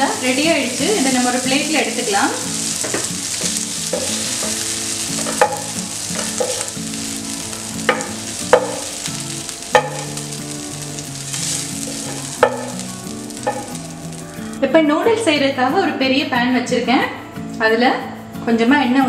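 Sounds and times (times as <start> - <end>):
chicken sizzling in frying pan: 0.0 - 14.7
spatula knocking against pan: 3.9 - 6.8, 7.8 - 9.0, 9.7 - 10.2, 12.2 - 12.8, 13.4 - 13.8.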